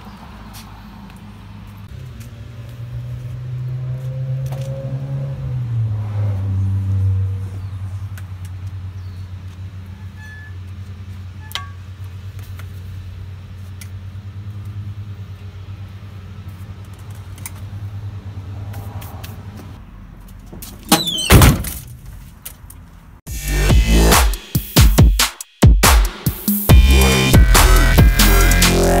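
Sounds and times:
vehicle engine humming: 0.0 - 24.2, 26.7 - 29.0.

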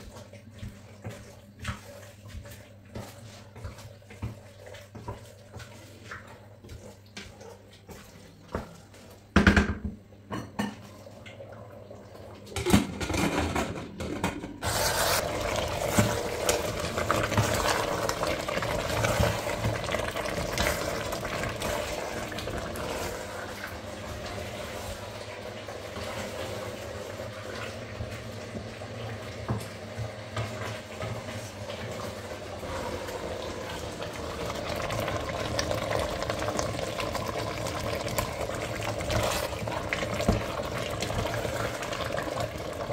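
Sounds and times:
meat sizzling in a pot: 14.6 - 42.9.

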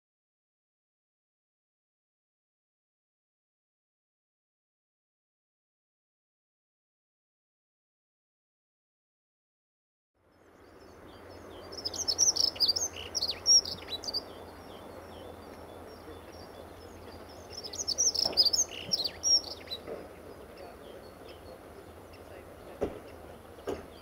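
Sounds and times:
bird warbling song: 10.2 - 24.0
faint background noise: 10.2 - 24.0.

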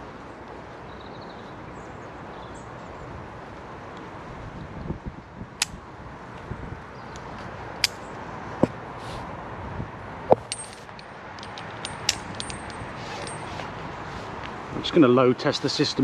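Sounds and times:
sharp metallic clicks: 7.2 - 8.2, 10.3 - 13.5
carabiners clicking and clinking: 10.3 - 13.8.

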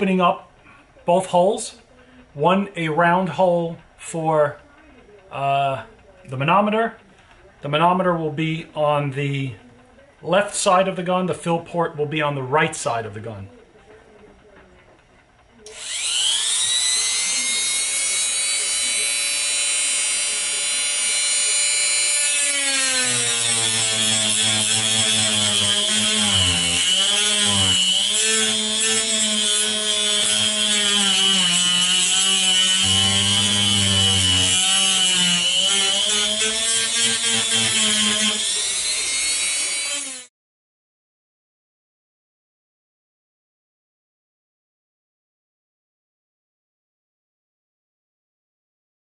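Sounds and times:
rotary tool grinding plastic: 15.7 - 40.3.

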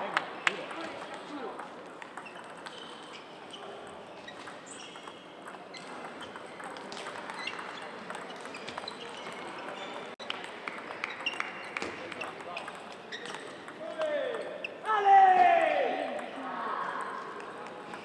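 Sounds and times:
murmur of room noise: 0.0 - 18.0
table tennis balls clicking: 0.5 - 14.5.

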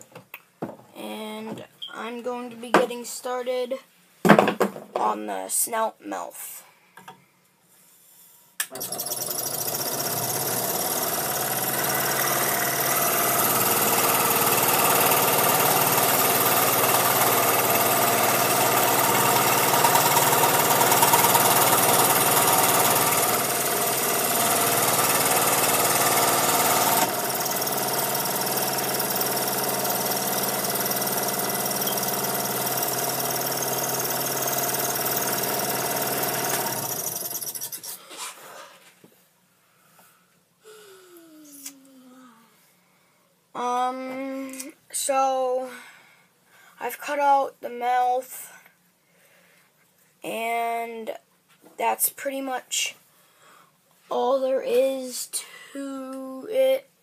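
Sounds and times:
scroll saw cutting wood: 8.7 - 38.0.

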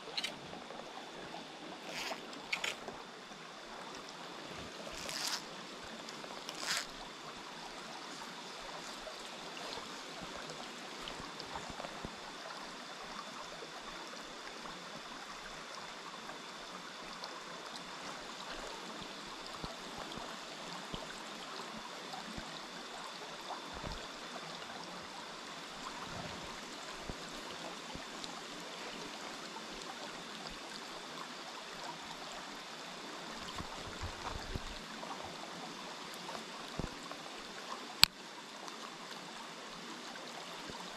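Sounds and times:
stream flowing over stones: 0.0 - 40.9.

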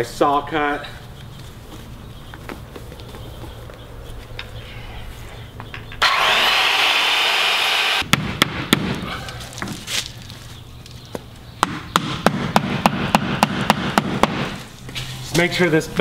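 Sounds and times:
circular saw cutting: 6.0 - 8.0
hammer strikes nailing: 8.0 - 9.1, 11.6 - 14.6.

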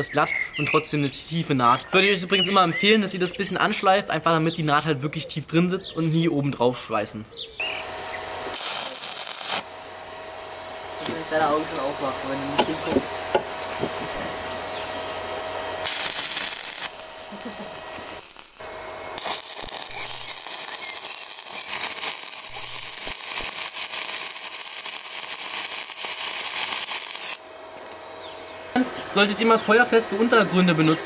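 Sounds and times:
welding arc crackling: 8.4 - 10.0, 15.1 - 27.5.

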